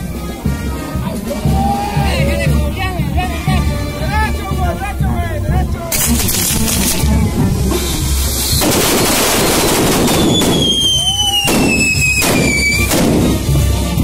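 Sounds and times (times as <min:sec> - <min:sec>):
fireworks crackling and hissing: 0:05.9 - 0:13.8
firework bangs: 0:08.0 - 0:13.6
whistling firework falling pitch: 0:10.1 - 0:13.0.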